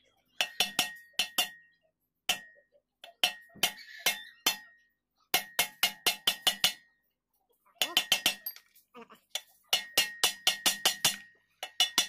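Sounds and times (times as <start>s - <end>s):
hammer striking metal: 0.4s - 7.0s, 9.7s - 12.0s.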